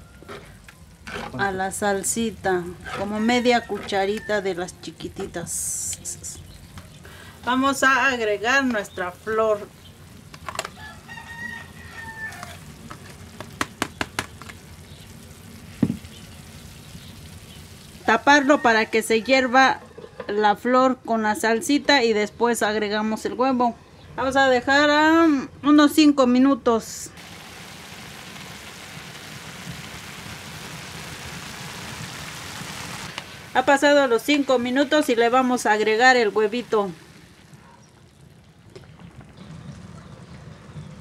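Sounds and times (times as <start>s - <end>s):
rooster crowing: 0.0s - 0.6s, 2.7s - 4.6s, 10.7s - 12.7s, 18.0s - 20.2s
food sizzling in a frying pan: 1.3s - 18.5s, 27.2s - 38.1s.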